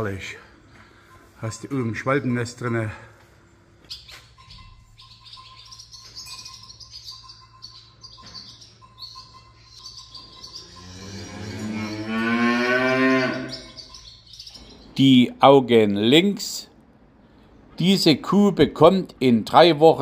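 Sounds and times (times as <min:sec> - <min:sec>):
swallows twittering: 0:03.9 - 0:15.4
cow mooing: 0:10.5 - 0:13.8.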